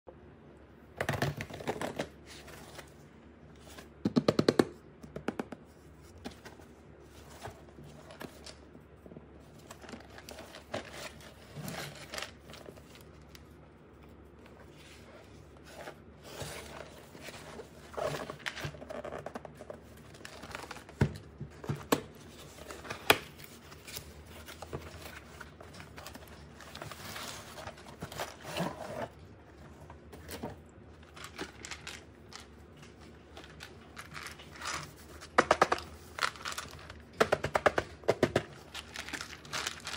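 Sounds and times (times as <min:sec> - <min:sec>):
packaging rustling and tearing: 0:09.5 - 0:13.6, 0:14.6 - 0:29.2, 0:30.0 - 0:39.9.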